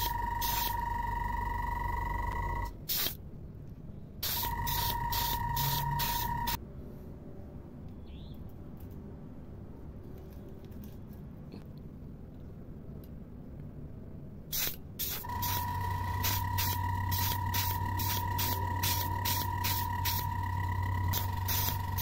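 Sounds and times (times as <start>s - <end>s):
aerosol spray can hissing: 0.0s - 0.8s, 2.9s - 3.2s, 4.2s - 6.6s, 14.5s - 20.3s, 21.1s - 22.0s.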